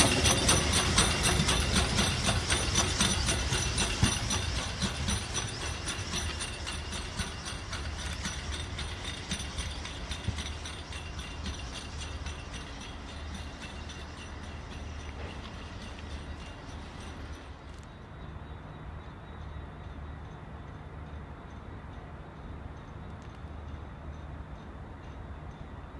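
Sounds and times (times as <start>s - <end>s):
low rumble of train: 0.0s - 25.9s
steam locomotive chuffing: 0.0s - 25.9s
train wheels clicking and clattering: 0.0s - 25.9s.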